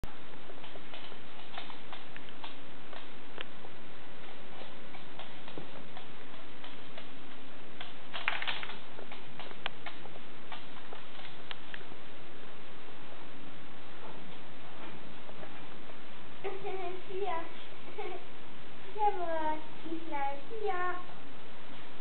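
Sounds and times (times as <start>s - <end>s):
steady background hiss: 0.1s - 22.0s
dog claws clicking on hard floor: 0.6s - 3.5s, 4.2s - 11.9s.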